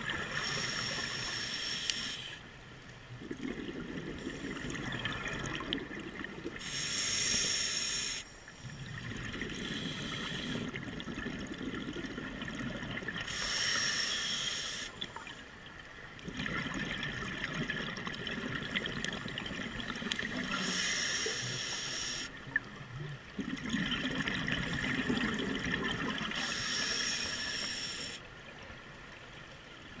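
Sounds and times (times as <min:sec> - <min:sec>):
diver breathing through regulator: 0:00.3 - 0:02.4, 0:06.6 - 0:10.7, 0:13.2 - 0:15.0, 0:19.9 - 0:22.3, 0:26.3 - 0:28.2
exhaled bubbles burbling: 0:03.1 - 0:06.6, 0:08.7 - 0:13.2, 0:16.2 - 0:20.6, 0:22.4 - 0:26.4.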